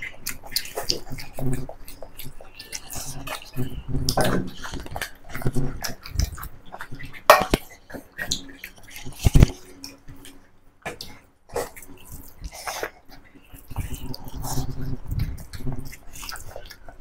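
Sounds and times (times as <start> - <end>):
chewing: 0.0 - 17.0
fingers mixing food on plate: 0.0 - 17.0
dishes knocking and clinking: 7.3 - 7.7.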